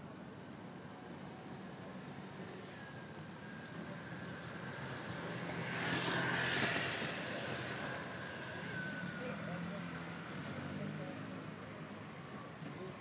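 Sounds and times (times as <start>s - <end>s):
vehicle passing by: 4.2s - 13.0s.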